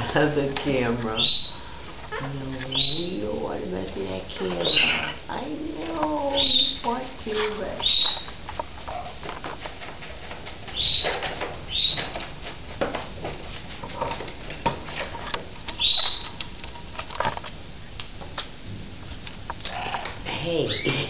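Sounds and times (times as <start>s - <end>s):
parrot squawks: 4.4s - 5.3s, 15.8s - 16.4s.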